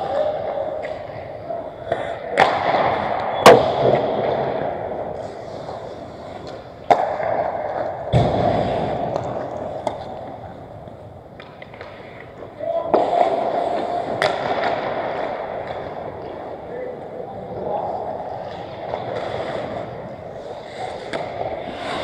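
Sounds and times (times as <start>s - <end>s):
hockey sticks cracking on puck: 1.8s - 17.0s, 17.6s - 22.0s.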